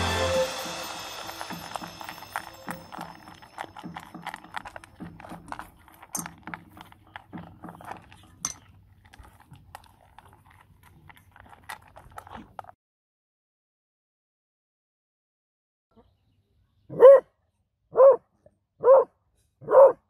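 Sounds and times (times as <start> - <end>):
kibble clinking on metal bowl: 0.0 - 12.7
dog crunching dry kibble: 0.3 - 12.8.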